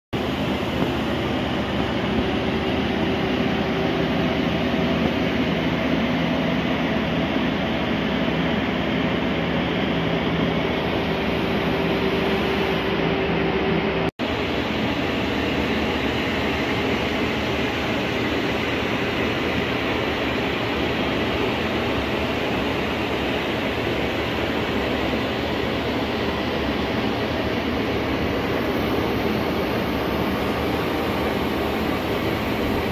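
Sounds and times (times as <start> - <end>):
ventilation fan rushing: 0.1 - 32.9
steady hum: 0.2 - 32.9.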